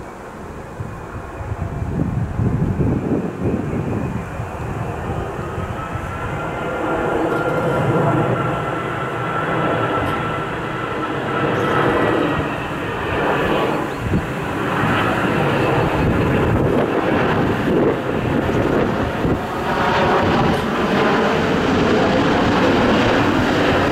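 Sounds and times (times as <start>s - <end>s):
jet airliner engine noise: 0.0s - 23.9s.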